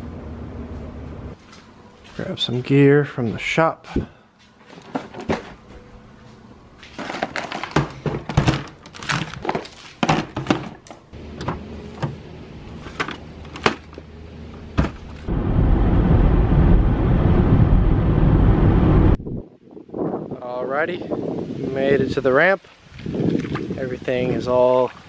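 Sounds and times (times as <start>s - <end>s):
road noise inside vehicle: 0.0s - 2.0s, 11.1s - 19.2s
low steady hum: 0.0s - 9.8s, 10.6s - 19.3s.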